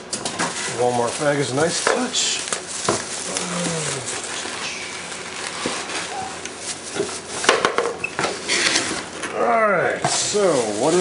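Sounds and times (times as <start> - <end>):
plastic bag crinkling: 0.3 - 7.5, 10.2 - 11.0.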